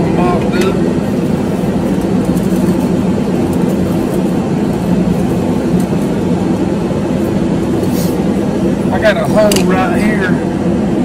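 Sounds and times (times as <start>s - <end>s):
loud mechanical drone: 0.0s - 11.0s.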